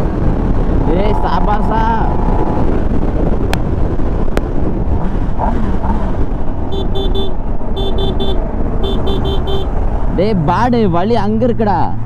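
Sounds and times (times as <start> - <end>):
wind and motorcycle engine rumble: 0.0 - 12.0
vehicle horn beeping: 6.7 - 9.8.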